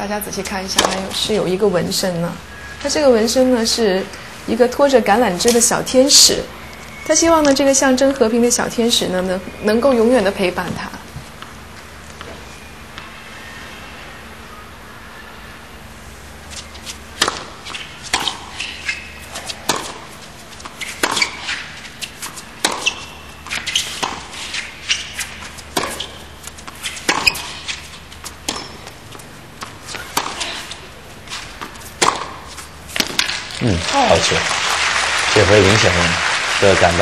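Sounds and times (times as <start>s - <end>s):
low arena hum: 0.0s - 37.0s
racquet striking tennis ball: 0.6s - 1.3s, 17.1s - 33.6s
tennis ball bouncing: 0.6s - 2.0s, 16.6s - 34.2s.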